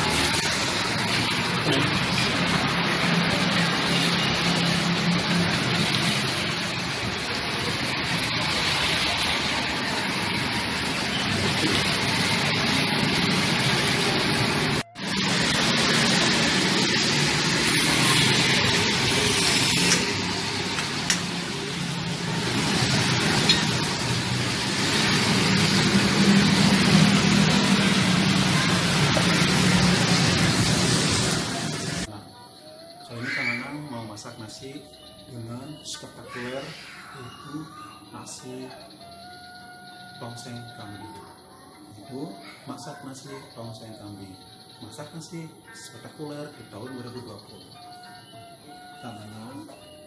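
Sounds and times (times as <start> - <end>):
motorbikes passing: 0.0 - 32.3
food stall background noise: 0.0 - 50.0.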